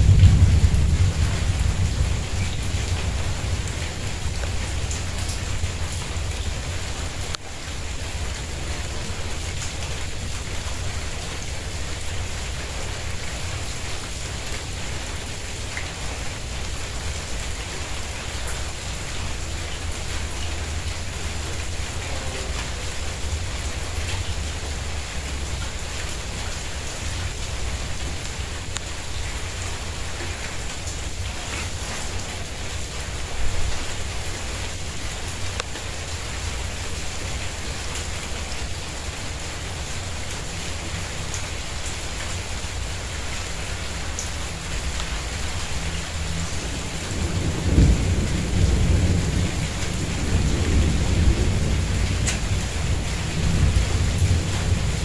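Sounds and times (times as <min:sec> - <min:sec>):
low rumble of thunder: 0:00.0 - 0:07.3, 0:44.8 - 0:55.0
rain on tiles and plants: 0:00.0 - 0:55.0.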